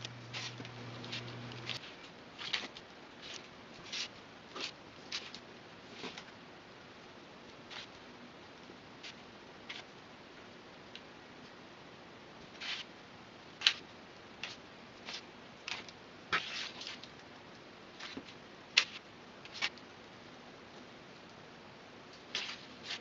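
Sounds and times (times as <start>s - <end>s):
knife blade scratching straw: 0.3s - 1.8s.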